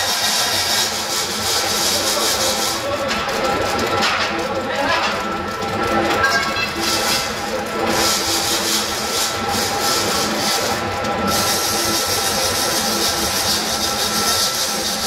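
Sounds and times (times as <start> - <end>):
drill bit grinding concrete: 0.0 - 15.0
core drill whine: 5.6 - 15.0.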